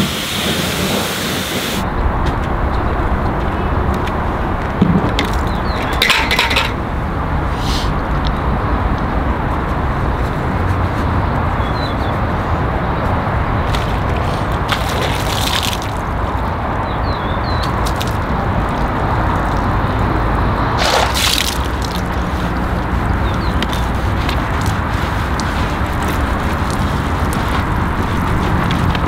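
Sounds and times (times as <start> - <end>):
water running and sloshing: 13.8 - 16.5, 20.7 - 23.0
water splash: 13.9 - 16.2, 20.7 - 22.2.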